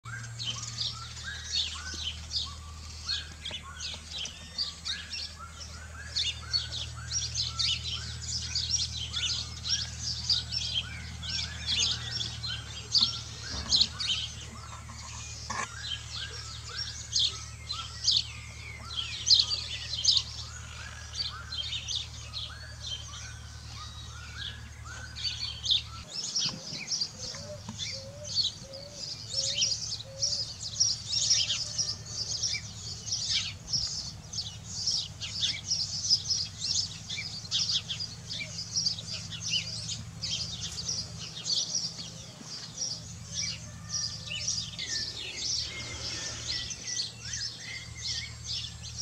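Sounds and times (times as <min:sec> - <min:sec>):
birds chirping in chorus: 0:00.0 - 0:49.0
low hum: 0:32.0 - 0:49.0.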